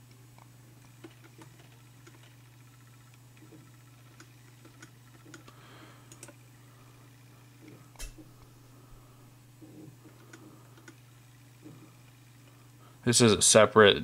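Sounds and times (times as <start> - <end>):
steady low hum: 0.0 - 14.0
computer mouse clicks: 0.4 - 6.4, 9.6 - 11.0.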